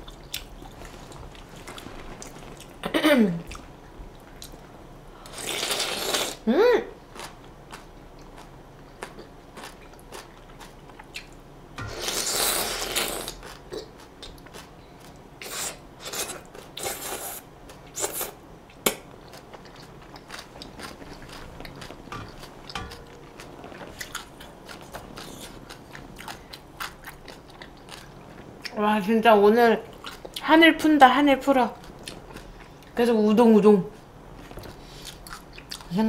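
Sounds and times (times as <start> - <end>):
person crunching and chewing food: 0.0 - 4.6, 7.1 - 28.8, 29.8 - 30.5, 34.4 - 36.0.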